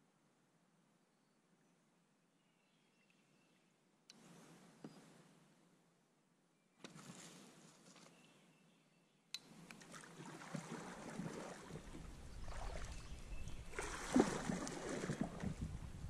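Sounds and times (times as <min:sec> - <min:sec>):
paddle strokes splashing water: 0:09.5 - 0:16.0
wind rumble on microphone: 0:11.7 - 0:16.0.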